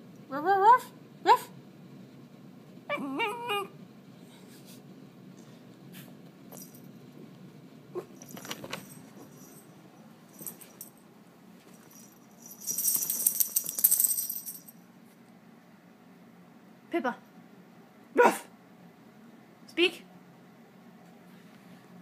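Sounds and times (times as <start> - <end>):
puppy yowling: 2.9 - 3.7
loud metallic jingling: 11.8 - 14.8.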